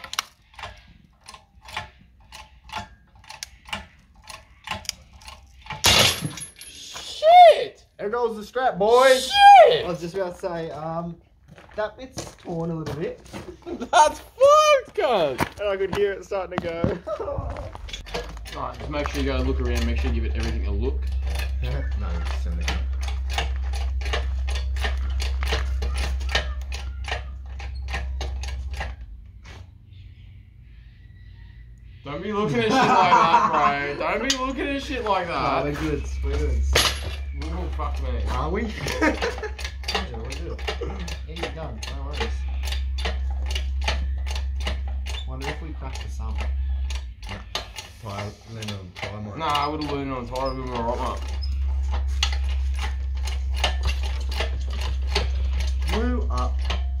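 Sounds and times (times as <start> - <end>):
ratcheting click-creak of lifting gear: 0.0 - 5.8, 17.7 - 29.2, 34.2 - 57.0
engine hoist humming: 12.7 - 57.0.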